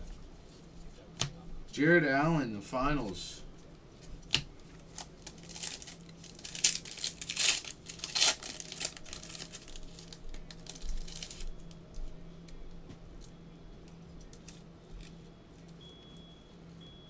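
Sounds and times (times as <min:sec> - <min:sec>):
foil packs crinkling: 0:04.2 - 0:11.8.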